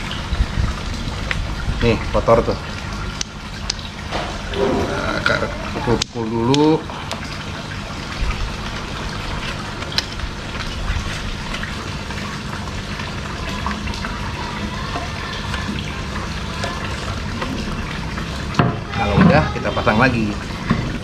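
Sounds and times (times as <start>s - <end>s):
running water: 0.0s - 21.0s.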